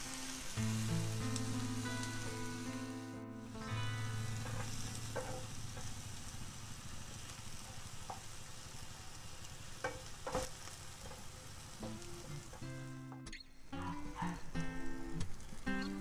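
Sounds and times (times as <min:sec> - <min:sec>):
vegetables sizzling in oil: 0:00.0 - 0:16.0
spatula knocking and scraping pan: 0:04.3 - 0:05.9, 0:09.8 - 0:12.6.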